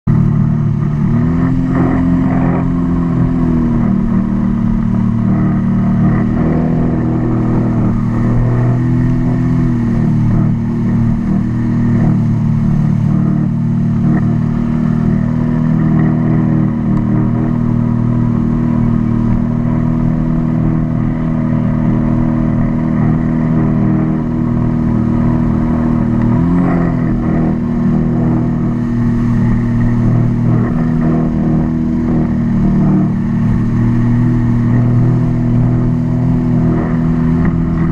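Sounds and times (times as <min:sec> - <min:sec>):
personal watercraft engine: 0:00.0 - 0:37.9
wind and water rushing: 0:00.1 - 0:37.9.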